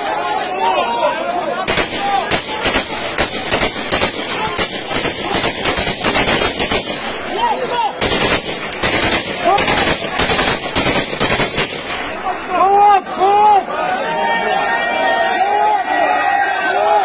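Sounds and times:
automatic gunfire: 1.7 - 7.3, 8.0 - 12.2.

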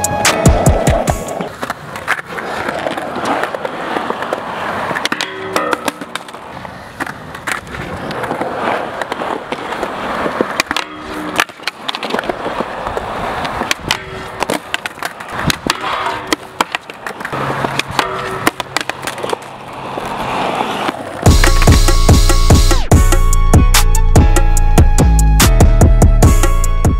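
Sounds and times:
skateboard wheels rolling on concrete: 0.0 - 26.9
skateboard clacks: 0.1 - 22.9
board striking metal handrail ringing: 5.0 - 6.2, 17.9 - 18.9.

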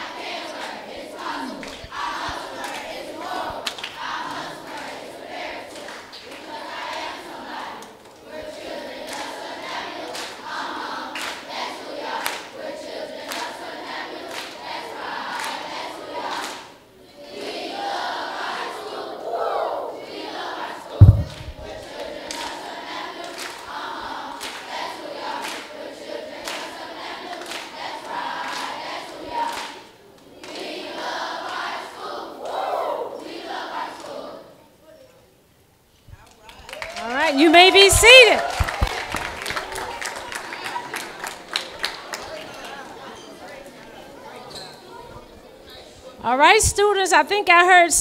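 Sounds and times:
crowd singing: 0.0 - 34.6, 37.1 - 43.4
hand claps: 3.6 - 4.9, 10.1 - 10.4, 11.2 - 11.4, 12.2 - 12.5, 23.2 - 23.7, 24.4 - 24.7, 25.4 - 25.7, 27.4 - 27.7, 29.5 - 29.8, 36.2 - 42.8.

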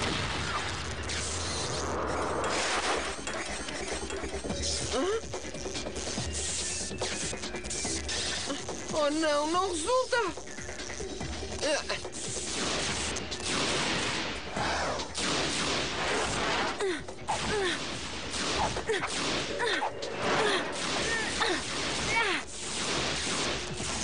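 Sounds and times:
laser shot zaps: 0.0 - 4.9, 11.5 - 24.0.

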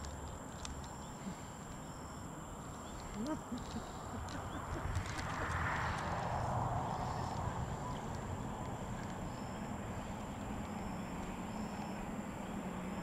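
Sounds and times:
steady thin high whine: 6.0 - 13.0.

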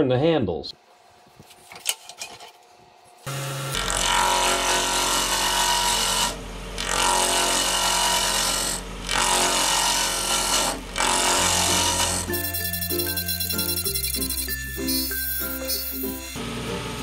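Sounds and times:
lathe motor hum: 7.0 - 17.0.

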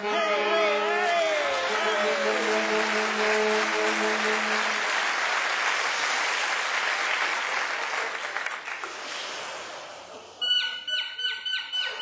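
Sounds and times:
saxophones holding a chord: 0.0 - 5.1
audience applauding: 0.0 - 9.7.

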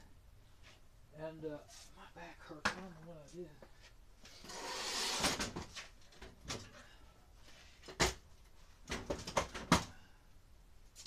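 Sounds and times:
hard objects clicking and knocking: 8.8 - 9.9.

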